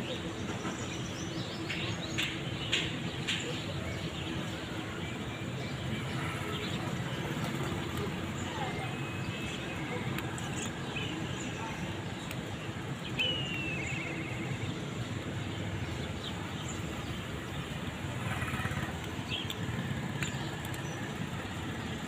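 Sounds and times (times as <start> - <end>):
traffic rumble: 0.0 - 22.0
bird chirp and trill: 12.9 - 19.6.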